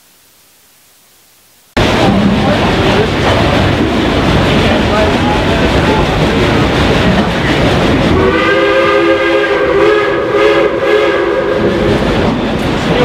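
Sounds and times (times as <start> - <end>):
moving train noise: 1.8 - 13.0
steam locomotive whistle: 8.1 - 12.0.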